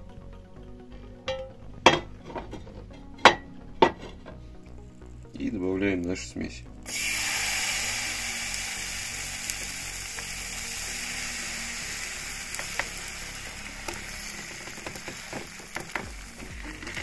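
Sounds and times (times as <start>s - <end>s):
batter sizzling in hot oil: 6.8s - 17.0s.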